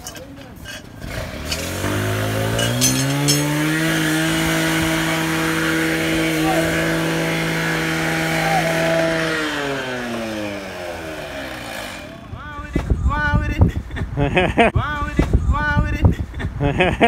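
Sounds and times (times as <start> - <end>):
engine revving: 1.0 - 12.4.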